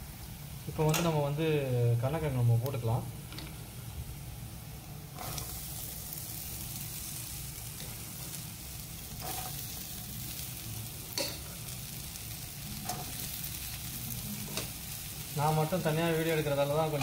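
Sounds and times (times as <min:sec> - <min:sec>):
food sizzling in hot oil: 0:00.0 - 0:17.0
stirring strokes against pan: 0:05.0 - 0:17.0.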